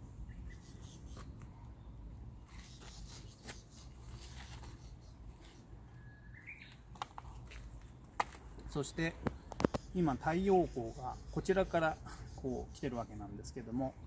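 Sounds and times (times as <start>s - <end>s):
leaves rustling: 2.4s - 5.7s.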